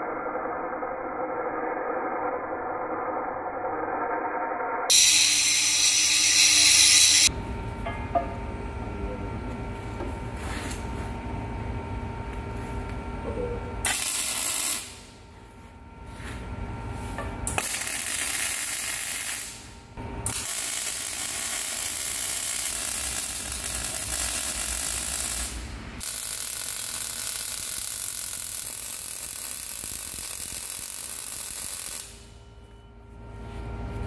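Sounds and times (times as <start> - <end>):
welding arc crackling: 4.9 - 7.3, 13.8 - 15.1, 17.5 - 32.3.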